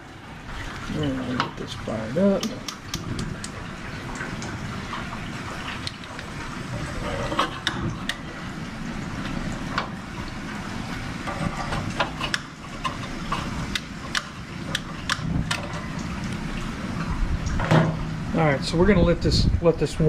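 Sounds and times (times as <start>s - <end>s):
igniter clicks: 2.3s - 4.5s, 12.0s - 16.4s.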